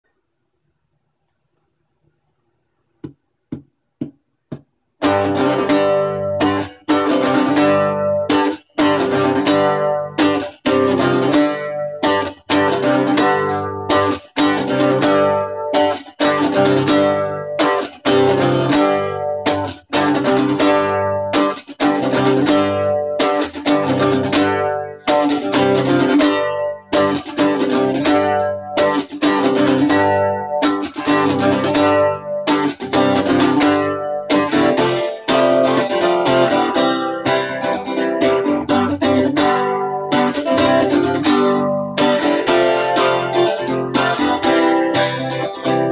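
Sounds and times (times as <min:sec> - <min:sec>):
acoustic guitar strumming: 0:04.5 - 0:45.9.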